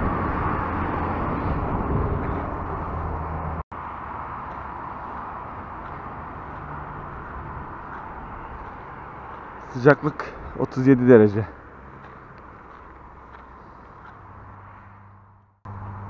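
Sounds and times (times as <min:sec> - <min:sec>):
low hum: 0:00.0 - 0:09.7.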